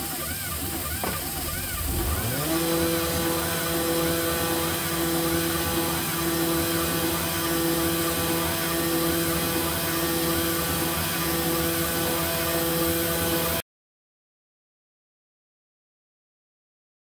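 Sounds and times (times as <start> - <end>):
router spindle spinning up: 0.0 - 13.6.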